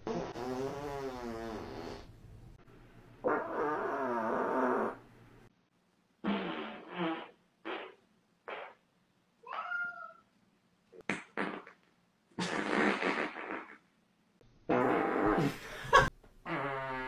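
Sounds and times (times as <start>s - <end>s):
farting: 0.0s - 2.1s, 3.2s - 5.0s, 6.2s - 8.8s, 11.0s - 13.9s, 14.7s - 17.0s.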